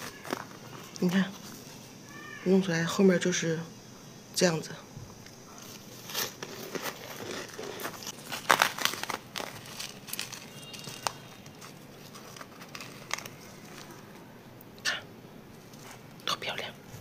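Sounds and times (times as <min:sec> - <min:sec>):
frost crunching and crackling: 0:00.0 - 0:02.4, 0:05.1 - 0:14.8
plastic rustling: 0:00.0 - 0:02.4, 0:05.4 - 0:14.4, 0:15.5 - 0:16.2.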